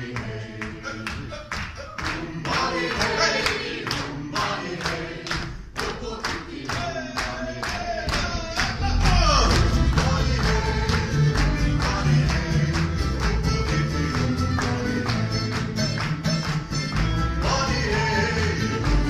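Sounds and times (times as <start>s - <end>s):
people singing: 0.0s - 16.2s, 17.2s - 19.0s
audience clapping along: 0.0s - 19.0s
heavy bass: 8.2s - 19.0s
live folk band playing: 8.8s - 19.0s.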